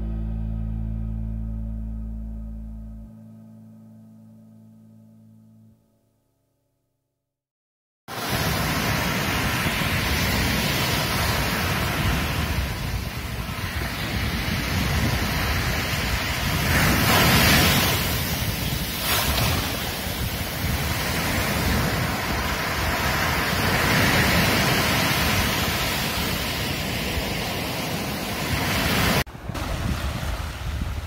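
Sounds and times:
waves breaking on beach: 0:08.1 - 0:31.0
wind on microphone: 0:08.2 - 0:31.0.

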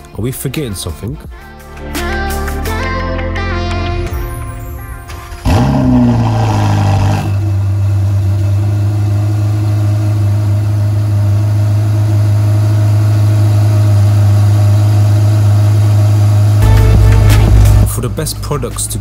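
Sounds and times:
sports car engine revving and idling: 0:05.4 - 0:19.0.

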